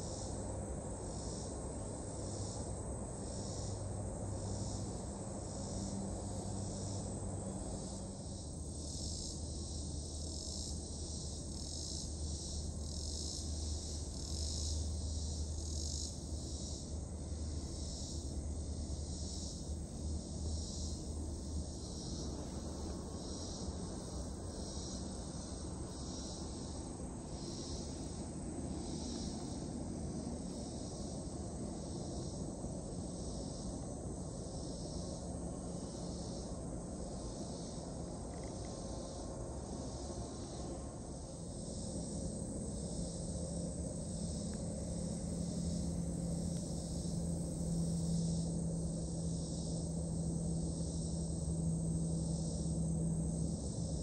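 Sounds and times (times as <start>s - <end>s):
insects buzzing: 0.0s - 54.0s
faint low drone: 40.4s - 54.0s.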